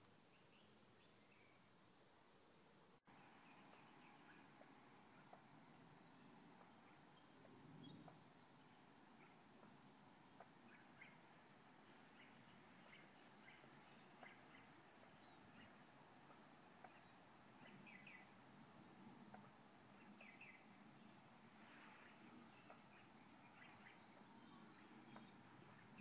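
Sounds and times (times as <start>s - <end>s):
small birds chirping: 0.0s - 26.0s
high-pitched insect call: 1.5s - 3.1s.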